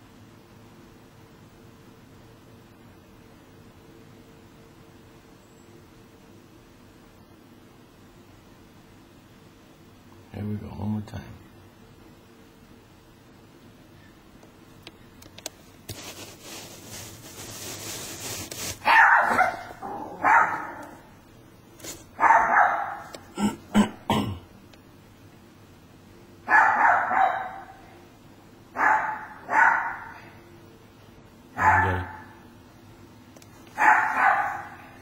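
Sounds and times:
dog barking: 18.8s - 21.0s, 22.2s - 23.1s, 26.5s - 27.8s, 28.8s - 30.2s, 31.6s - 32.4s, 33.8s - 35.0s.

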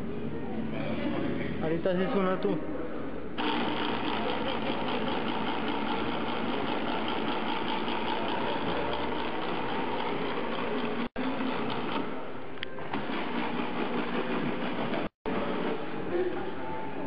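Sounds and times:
small electric motor whirring: 3.4s - 12.0s.

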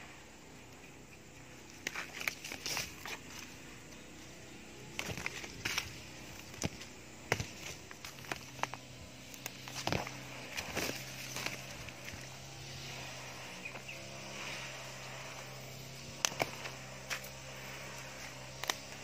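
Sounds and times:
leaves rustling: 0.0s - 19.0s
leaves and shoots snapping: 1.6s - 3.6s, 4.8s - 12.4s, 15.4s - 19.0s.

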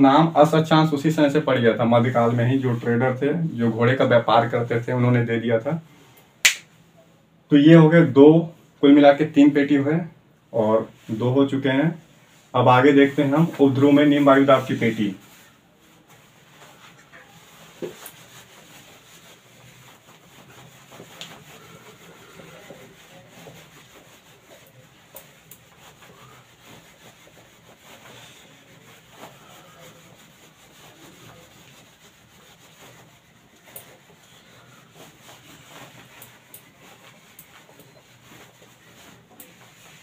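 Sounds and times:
duster rubbing on whiteboard: 10.6s - 40.0s.

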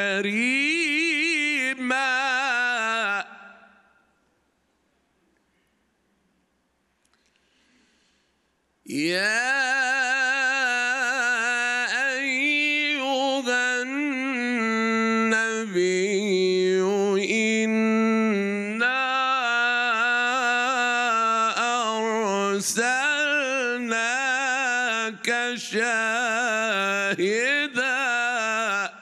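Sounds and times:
man chanting melodically: 0.0s - 3.7s, 8.9s - 29.0s
breaths between phrases: 7.2s - 8.6s.

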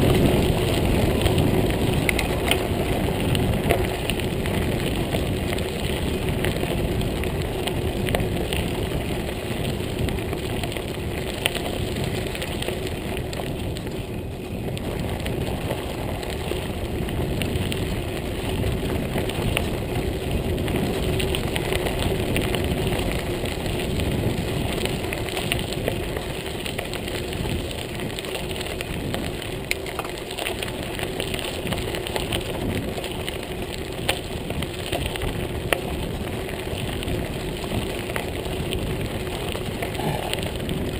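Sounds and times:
bike tyres on gravel: 0.0s - 40.9s
small clicks and rattles: 0.0s - 40.9s.

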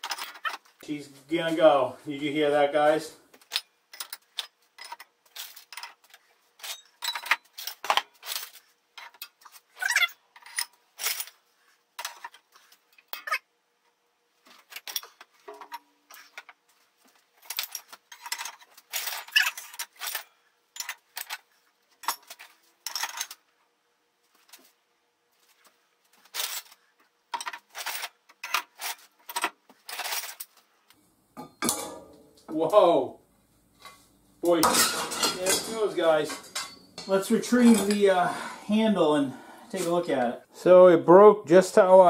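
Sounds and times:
scrap steel clanking: 31.4s - 32.5s, 33.8s - 39.2s.

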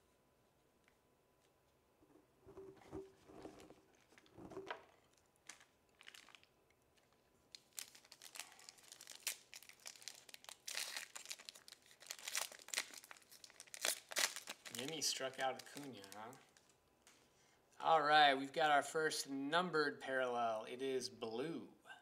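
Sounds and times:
foil wrapper crinkling and tearing: 5.0s - 16.8s.

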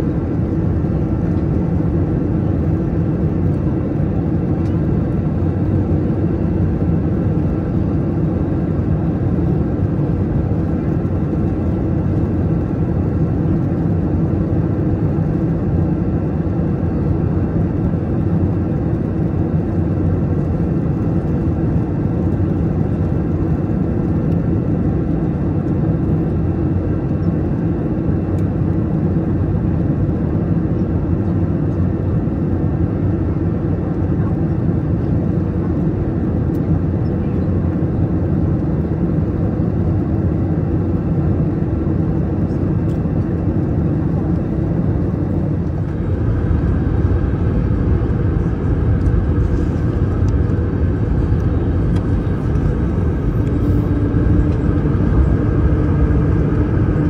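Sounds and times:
faint steady whines: 0.0s - 57.0s
jet engines low roar: 0.0s - 57.0s.

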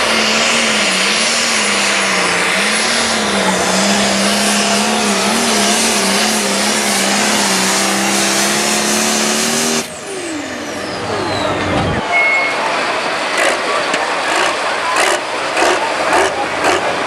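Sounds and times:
diesel tractor engine under load: 0.0s - 17.0s
turbo whistle: 10.8s - 12.7s.

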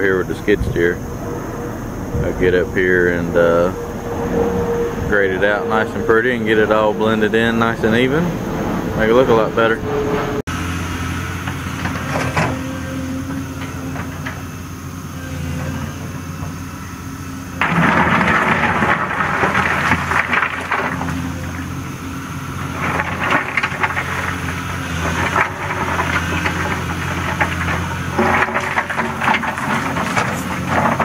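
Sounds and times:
excavator diesel engine running: 0.0s - 31.0s
bucket scraping rock: 17.6s - 31.0s.

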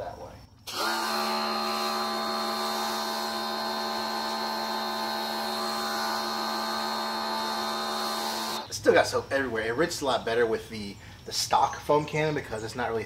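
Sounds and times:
pressure washer motor humming: 0.6s - 8.7s
water jet hissing: 0.7s - 8.7s.

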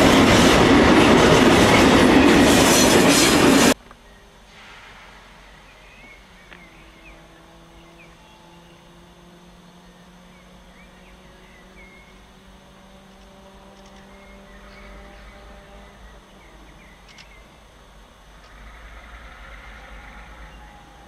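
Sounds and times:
distant diesel locomotive engine: 0.0s - 21.0s
birds chirping: 5.3s - 17.7s.

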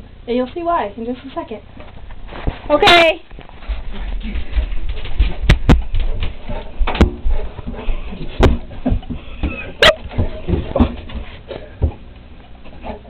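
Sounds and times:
paws thumping on bathtub: 3.6s - 12.1s.

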